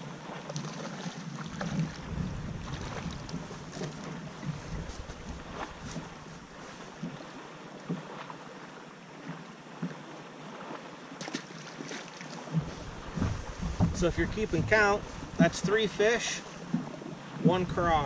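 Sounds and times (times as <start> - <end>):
wind buffeting microphone: 1.4 - 7.2, 12.5 - 18.0.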